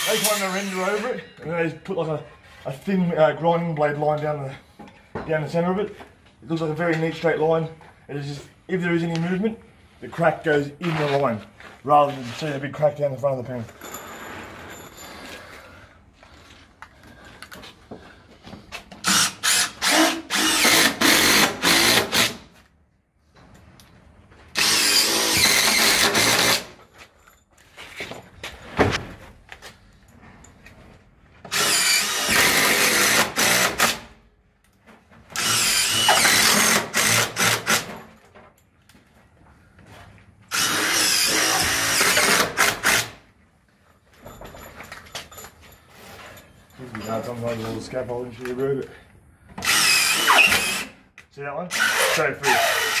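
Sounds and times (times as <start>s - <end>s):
cordless drill driving screws: 19.0s - 22.4s, 24.5s - 26.7s, 31.5s - 34.1s, 35.3s - 38.0s, 40.5s - 43.2s, 49.6s - 51.0s, 51.7s - 53.0s.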